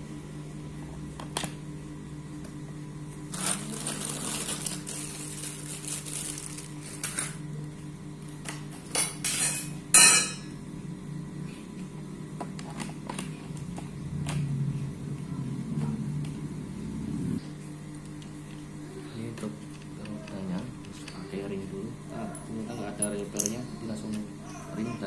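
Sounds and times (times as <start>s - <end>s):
plastic wrapping rustling: 3.3s - 7.4s.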